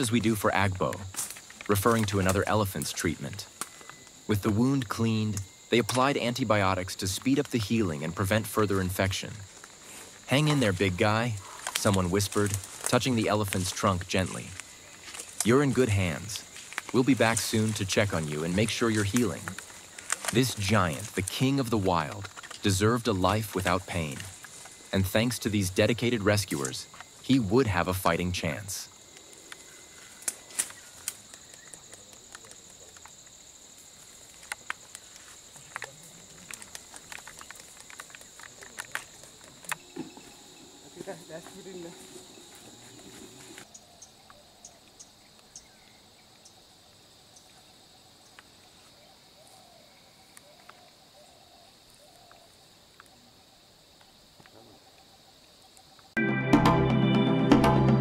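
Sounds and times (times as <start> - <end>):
high insect drone: 0.0 - 56.2
high-pitched insect drone: 39.0 - 46.6.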